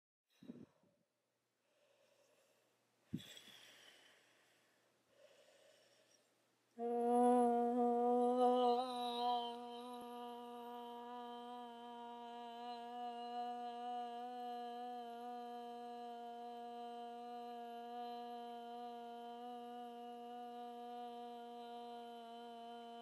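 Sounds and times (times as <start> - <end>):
woman breathing in: 1.6 - 6.4
woman singing long note: 6.8 - 23.0.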